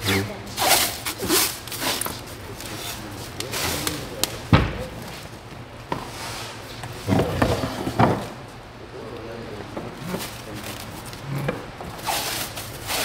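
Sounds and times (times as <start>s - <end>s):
loud thump: 4.5s - 4.9s.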